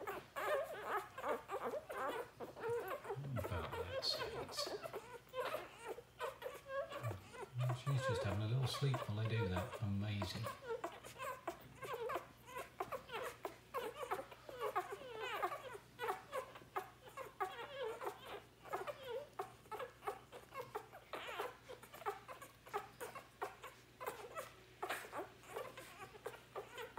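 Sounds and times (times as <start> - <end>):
puppies squeaking and whimpering: 0.0 - 26.9
puppies suckling clicks: 0.0 - 26.9.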